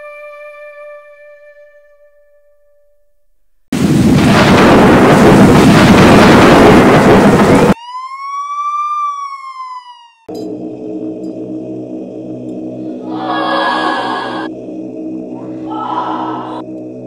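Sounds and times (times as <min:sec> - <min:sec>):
thunder crash and rumble: 0:03.8 - 0:07.8
long high wail: 0:12.8 - 0:14.5, 0:15.4 - 0:16.6.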